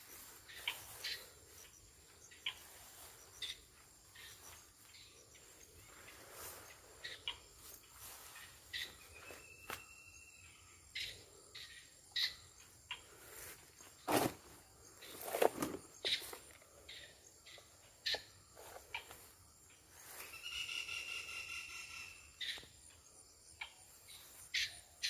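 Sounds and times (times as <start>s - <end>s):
rustles and clicks in grass: 0.0s - 9.9s, 12.9s - 16.8s, 17.5s - 20.7s
insects chirring: 0.0s - 25.0s.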